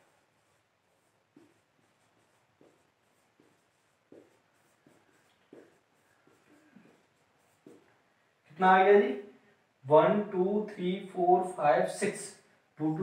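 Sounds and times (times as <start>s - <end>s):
marker pen writing on whiteboard: 0.0s - 8.1s.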